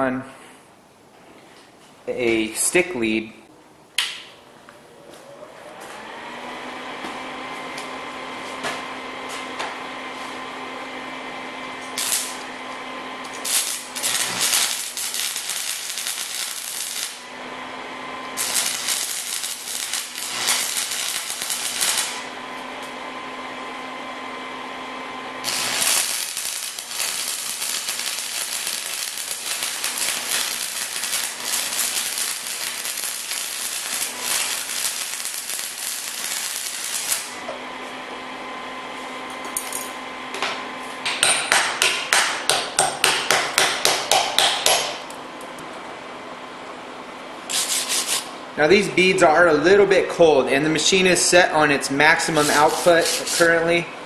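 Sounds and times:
steady hum: 6.7s - 54.0s
welding arc crackling and sizzling: 10.2s - 23.9s, 25.2s - 37.5s, 47.5s - 53.9s.

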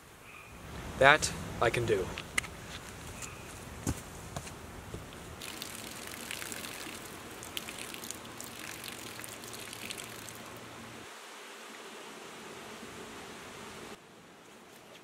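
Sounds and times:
urine trickling onto ground: 5.4s - 10.6s.

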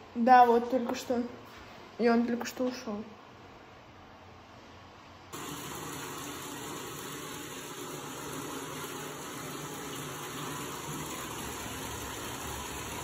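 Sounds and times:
faucet water pouring into tub: 5.4s - 13.0s.

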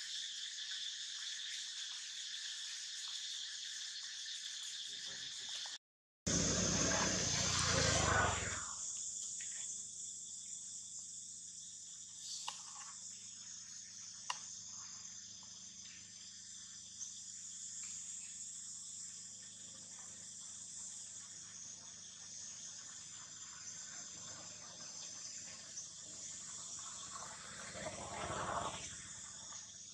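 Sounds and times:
high-pitched insect chorus: 0.0s - 29.9s
rush of low noise: 6.3s - 8.8s.

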